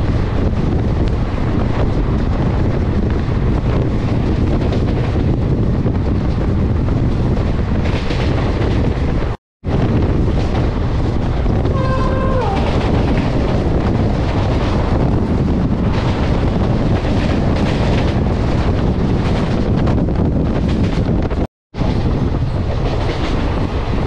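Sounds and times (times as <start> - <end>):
train rumbling at speed: 0.0 - 24.0
wind buffeting microphone: 0.0 - 24.0
faint train horn: 11.7 - 12.9.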